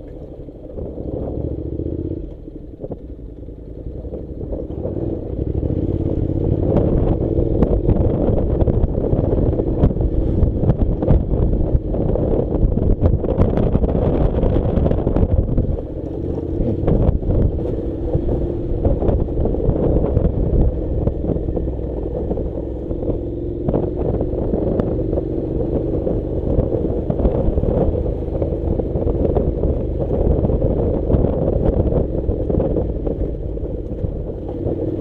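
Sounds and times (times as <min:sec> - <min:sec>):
motorcycle engine running: 0:00.0 - 0:35.0
wind on microphone: 0:00.0 - 0:35.0
stones clicking under tyres: 0:12.5 - 0:35.0.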